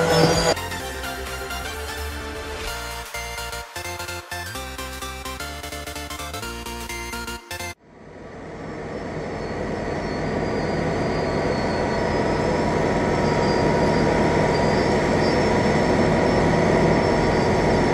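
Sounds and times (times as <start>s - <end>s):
heavy machinery rumbling and whining: 0.0s - 3.1s, 7.8s - 17.9s.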